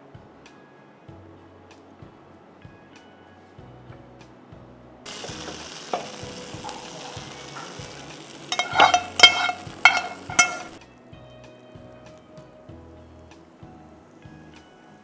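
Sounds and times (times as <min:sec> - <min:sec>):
hot ghee sizzling: 0:05.1 - 0:10.8.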